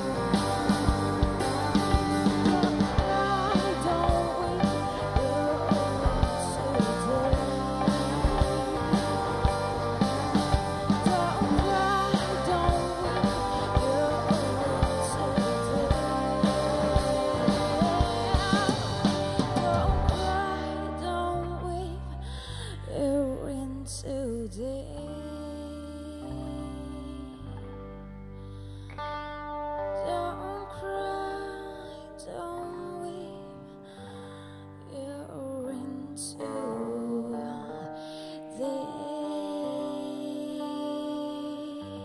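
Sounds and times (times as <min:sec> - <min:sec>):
drum kit beat: 0:00.0 - 0:20.8
electric bass: 0:00.0 - 0:37.3
electric guitar: 0:00.0 - 0:42.0
keyboard: 0:00.0 - 0:42.0.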